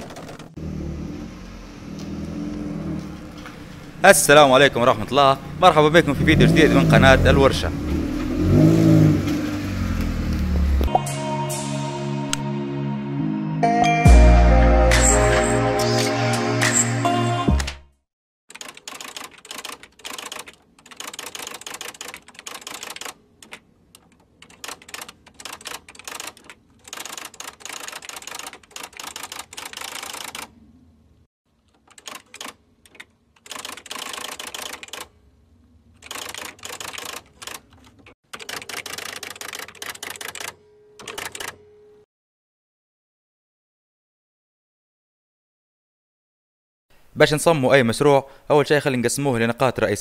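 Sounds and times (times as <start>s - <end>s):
typewriter keystrokes clacking: 18.5s - 30.5s, 31.6s - 35.1s, 36.0s - 41.6s.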